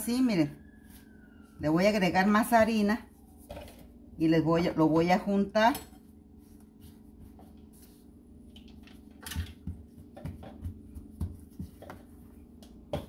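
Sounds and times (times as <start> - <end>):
dough rustling: 0.0 - 13.0
soft thuds of dough patted: 9.6 - 13.0.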